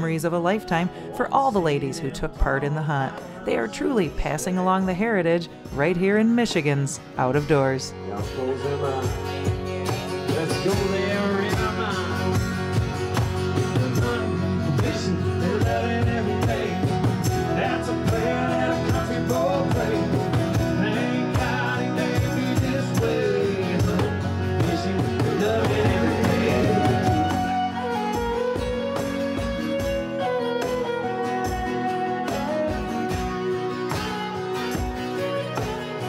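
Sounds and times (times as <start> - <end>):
strummed acoustic guitar: 0.0 - 36.0
fiddle: 7.6 - 36.0
person singing: 9.9 - 34.3.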